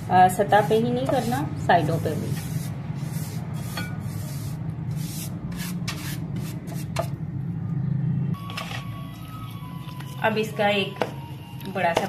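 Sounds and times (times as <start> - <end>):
pastry brush stroking a pan: 0.0 - 6.9.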